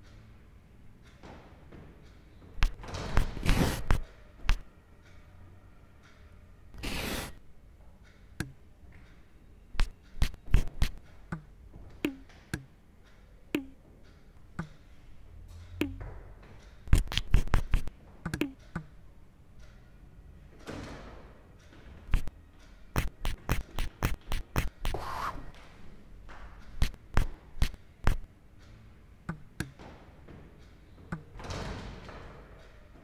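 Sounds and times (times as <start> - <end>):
sharp taps and knocks: 15.8 - 18.9, 22.1 - 22.3, 23.0 - 25.0, 26.3 - 28.3, 29.3 - 29.9.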